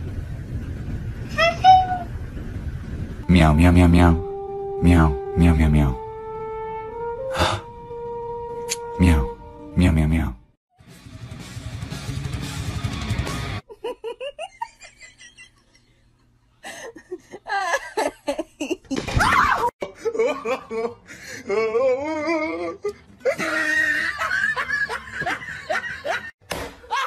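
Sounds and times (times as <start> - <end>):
people laughing: 19.8 - 21.2, 23.2 - 27.0.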